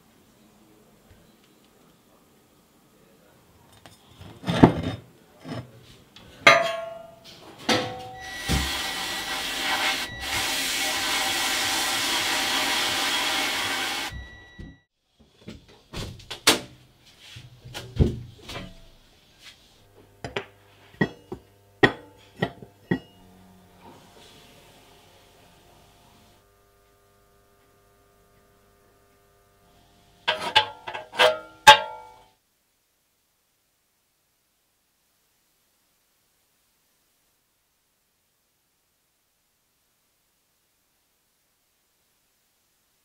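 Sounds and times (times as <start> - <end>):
sandblast gun hissing: 8.4 - 14.2, 23.8 - 26.4.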